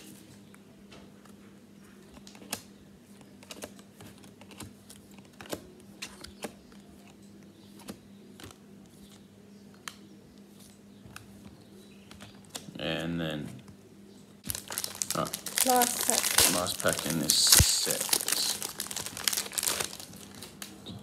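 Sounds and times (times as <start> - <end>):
faint steady hum: 0.0 - 21.0
trading cards clicking and snapping: 2.1 - 11.5.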